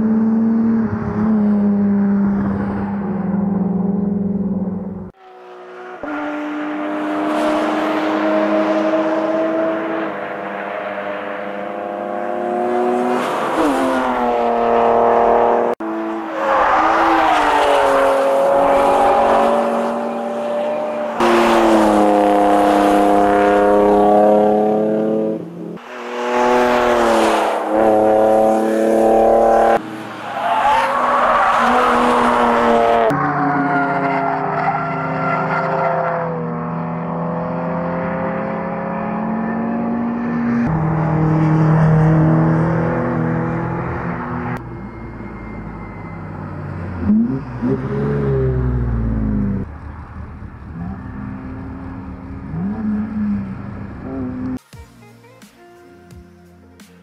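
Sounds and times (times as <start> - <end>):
car engine revving hard: 16.8 - 29.8.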